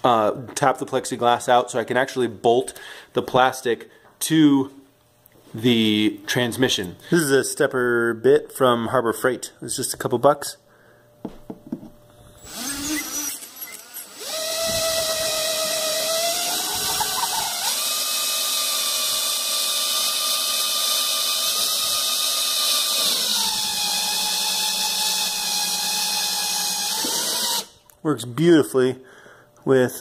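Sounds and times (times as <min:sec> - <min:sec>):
power drill whining through plastic: 0:12.3 - 0:27.8.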